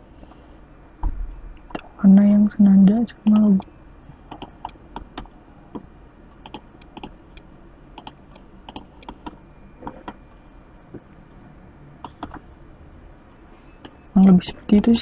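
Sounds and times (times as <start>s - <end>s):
faint low hum: 0.0s - 15.0s
mouse and keyboard clicks: 6.4s - 7.1s, 8.0s - 10.2s.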